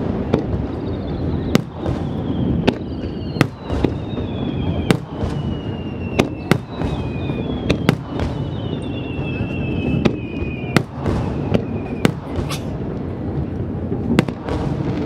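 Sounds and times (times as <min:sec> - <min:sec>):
fireworks bursting with sharp bangs: 0:00.0 - 0:15.0
high whistles sliding down: 0:00.7 - 0:12.1
constant low rumble: 0:03.8 - 0:15.0.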